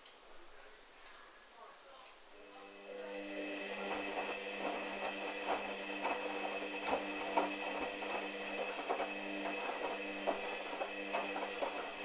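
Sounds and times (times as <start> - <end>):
washing machine motor hum: 2.4 - 12.0.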